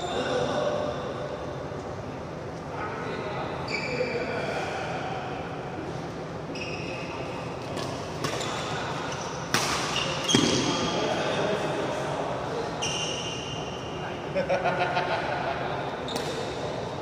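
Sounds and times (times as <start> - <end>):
court shoes squeaking: 0.0 - 1.0, 3.6 - 5.0, 6.0 - 11.4, 12.5 - 14.1, 16.0 - 17.0
racket hitting shuttlecock: 7.6 - 8.6, 9.5 - 10.9.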